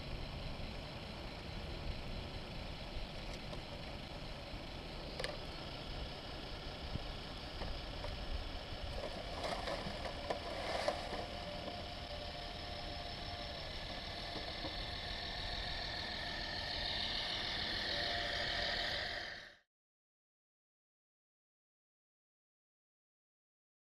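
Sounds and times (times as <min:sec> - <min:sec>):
mechanical whine: 0:00.0 - 0:19.7.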